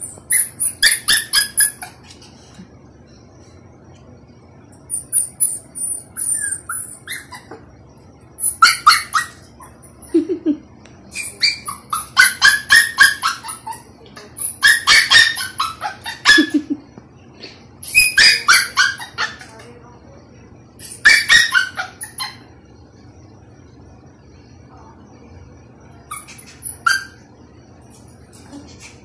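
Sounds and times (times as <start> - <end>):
small dog whimpering and yelping: 0.0 - 2.1, 4.9 - 7.6, 8.4 - 10.1, 11.1 - 16.6, 17.8 - 19.5, 20.8 - 22.4.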